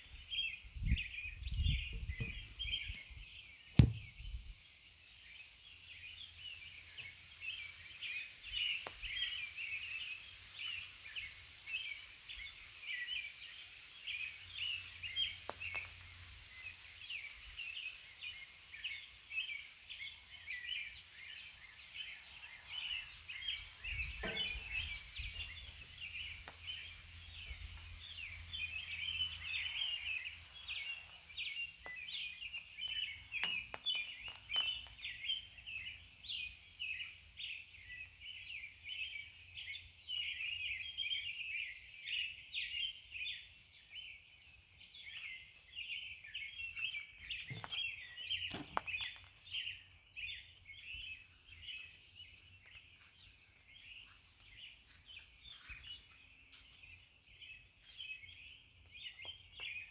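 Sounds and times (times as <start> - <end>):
birds chirping: 0.0 - 59.9
light knocks: 3.8 - 4.1.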